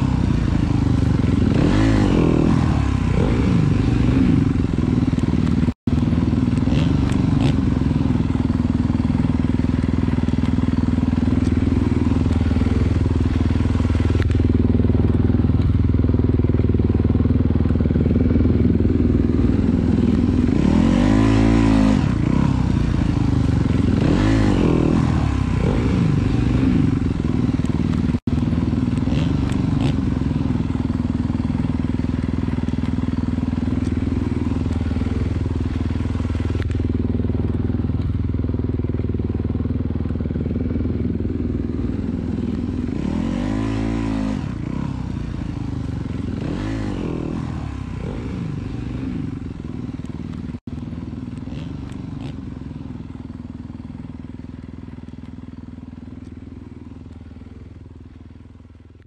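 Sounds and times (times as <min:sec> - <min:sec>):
dirt bike engine revving: 0:00.0 - 0:54.1.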